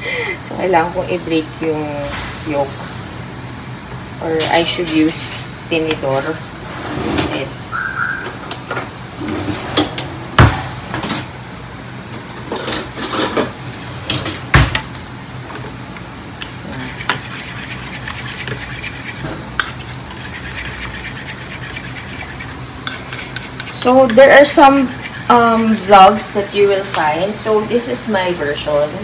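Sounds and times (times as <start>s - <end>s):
utensils scraping metal bowl: 16.4s - 27.9s.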